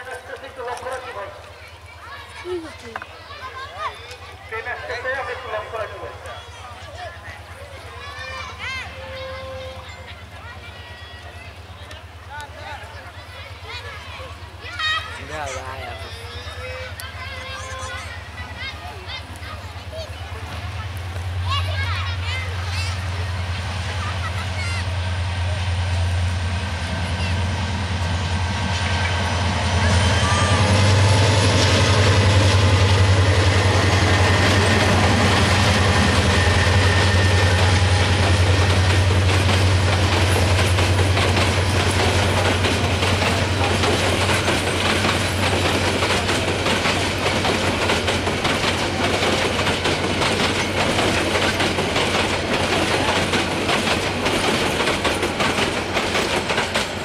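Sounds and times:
diesel locomotive engine droning: 0:00.0 - 0:57.0
train wheels clacking over rail joints: 0:28.4 - 0:57.0.

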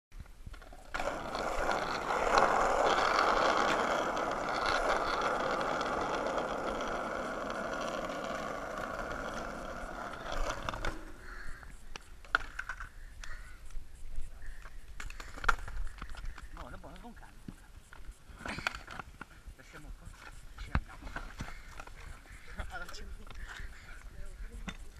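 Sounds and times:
skateboard wheels rolling on asphalt: 0:00.2 - 0:13.4.

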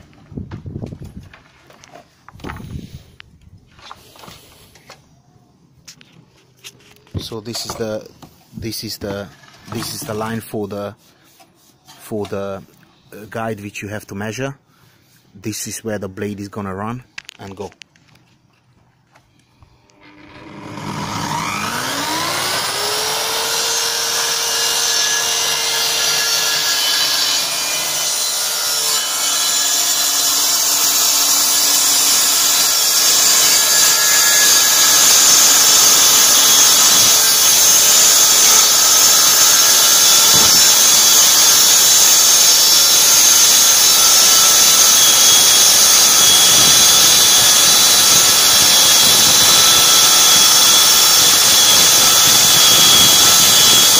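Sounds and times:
circular saw cutting plywood: 0:09.0 - 0:10.6, 0:19.7 - 0:53.9.

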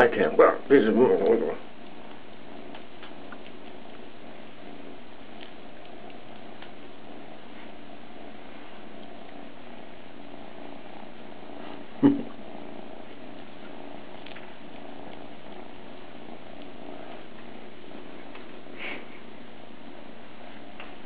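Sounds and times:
kitten purring: 0:00.0 - 0:21.0.

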